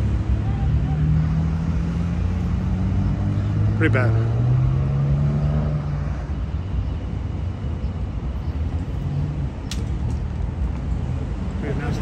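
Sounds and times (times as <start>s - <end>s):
low roadway rumble: 0.0s - 12.0s.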